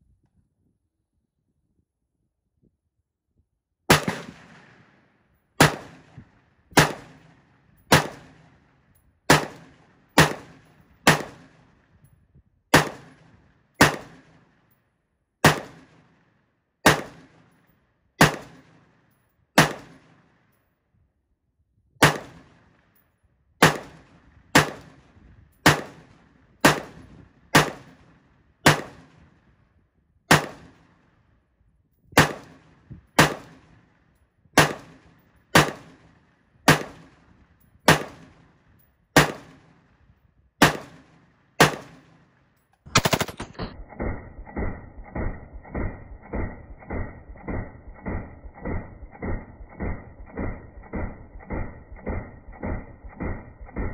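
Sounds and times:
rifle single shots: 3.9s - 11.8s, 12.7s - 14.6s, 15.4s - 17.6s, 18.2s - 19.0s, 19.6s - 20.4s, 22.0s - 22.8s, 23.6s - 29.4s, 30.3s - 31.0s, 32.2s - 34.0s, 34.6s - 40.0s, 40.6s - 53.9s.

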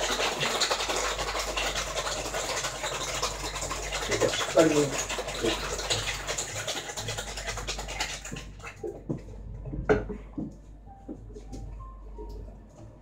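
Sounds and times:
cocktail shaker rattling with ice: 0.0s - 8.8s.

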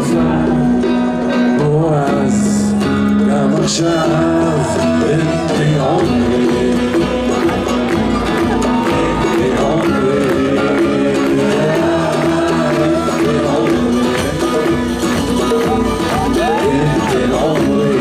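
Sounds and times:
guitars strumming: 0.0s - 18.0s
man singing: 0.0s - 18.0s
flute: 11.8s - 18.0s.

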